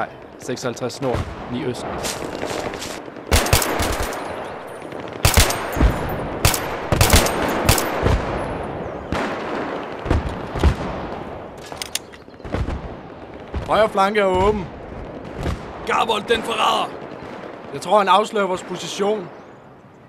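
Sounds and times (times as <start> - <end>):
automatic rifle fire: 3.3 - 4.3, 5.2 - 8.2.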